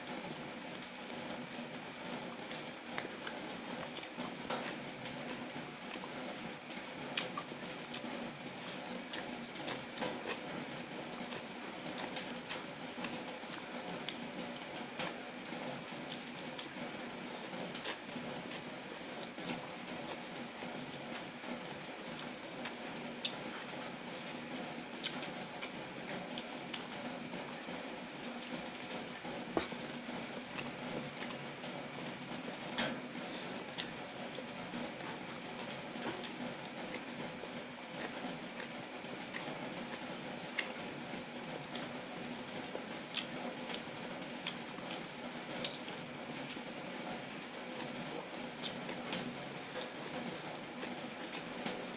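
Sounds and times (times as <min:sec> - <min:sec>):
low background hum: 0:00.0 - 0:51.9
wet chewing: 0:00.3 - 0:51.9
chewing mouth clicks and smacks: 0:05.8 - 0:10.5, 0:43.1 - 0:45.0, 0:45.6 - 0:46.6.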